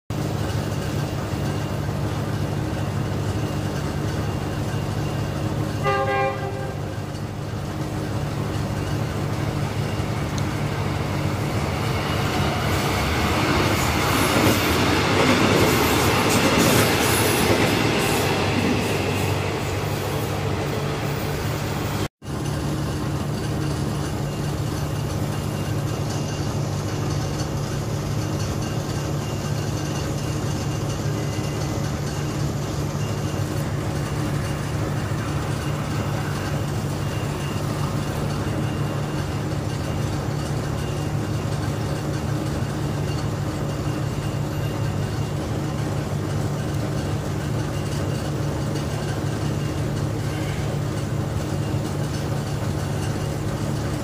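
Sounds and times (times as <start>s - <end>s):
train wheels clicking over rails: 0.1s - 54.0s
train horn blast: 5.8s - 7.1s.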